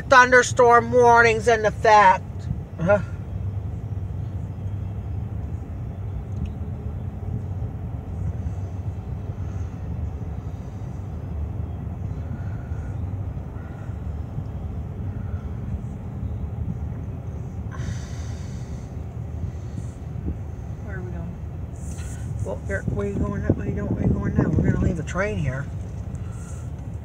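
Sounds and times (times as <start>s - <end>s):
engine and tyre rumble: 0.0s - 27.0s.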